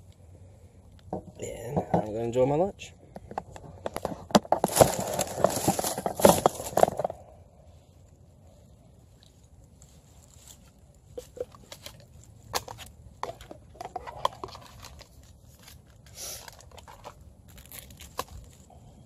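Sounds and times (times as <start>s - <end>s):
paper packet crinkling: 4.0s - 7.2s, 10.4s - 18.7s.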